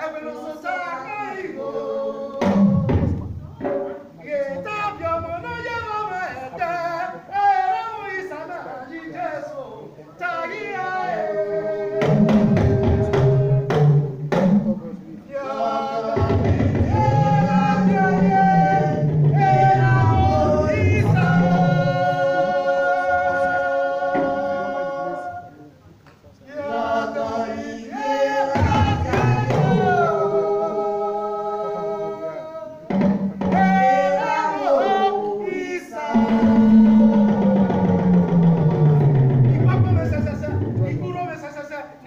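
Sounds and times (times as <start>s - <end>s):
person singing long held notes: 16.2s - 25.6s, 33.4s - 39.4s.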